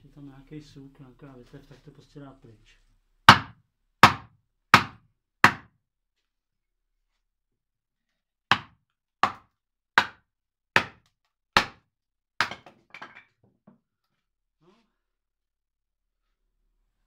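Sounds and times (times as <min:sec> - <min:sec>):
wooden mallet knocking on blade: 0:03.3 - 0:05.7, 0:08.5 - 0:09.4, 0:10.0 - 0:10.2, 0:10.8 - 0:11.0, 0:11.6 - 0:11.8.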